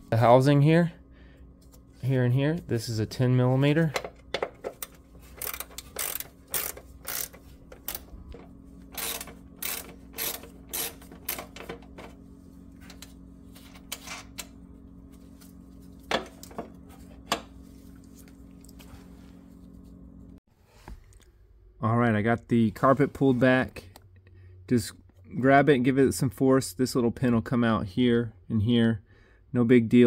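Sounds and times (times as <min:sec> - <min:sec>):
steady low hum: 0:00.0 - 0:20.4
socket ratchet clicking: 0:05.3 - 0:08.1, 0:08.9 - 0:11.6.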